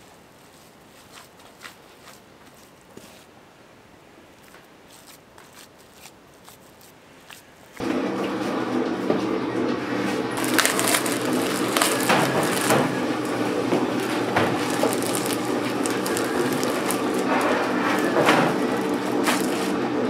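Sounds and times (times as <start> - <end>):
low mechanical hum: 0.0 - 20.0
plastic bags crinkling: 10.4 - 19.8.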